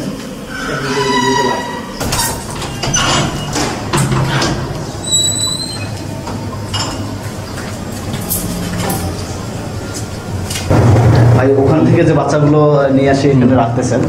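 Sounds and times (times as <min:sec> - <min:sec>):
steady low hum: 0:00.0 - 0:14.0
door squeak: 0:00.5 - 0:07.1
door knocks and clatters: 0:02.0 - 0:05.0.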